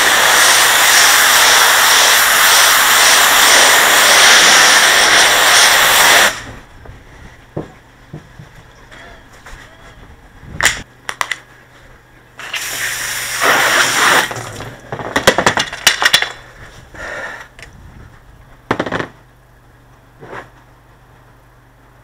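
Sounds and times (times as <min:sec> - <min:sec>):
pressure washer jet spraying: 0:00.0 - 0:06.5, 0:12.4 - 0:14.6
low steady hum: 0:06.3 - 0:13.4, 0:14.3 - 0:22.0
sharp clicks and knocks: 0:10.6 - 0:11.5.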